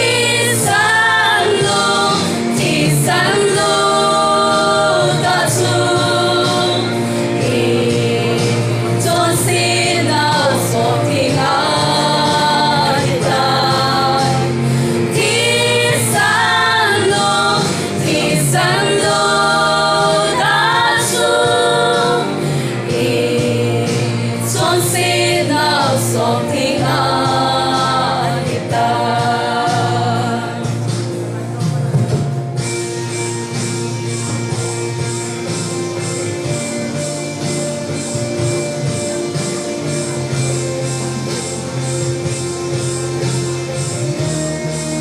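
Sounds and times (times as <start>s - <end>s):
women singing gospel song: 0.0s - 31.0s.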